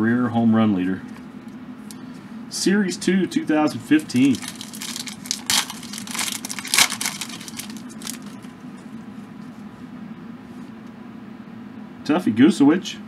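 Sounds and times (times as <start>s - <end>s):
card pack wrapper tearing: 3.9s - 8.5s
cards rustling: 3.9s - 8.5s.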